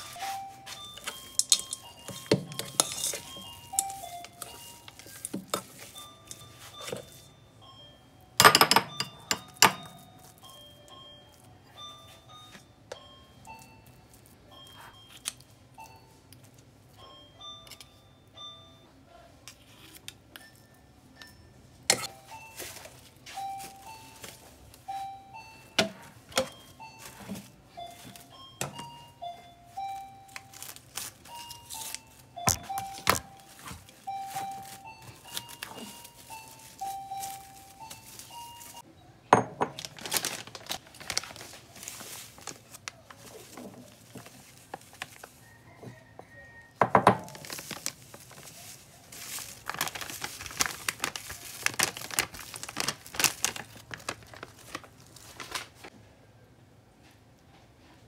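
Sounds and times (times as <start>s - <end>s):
soft background music: 0.0s - 43.9s
cling film crinkling and tearing: 30.3s - 38.8s, 39.8s - 45.4s, 47.3s - 55.9s.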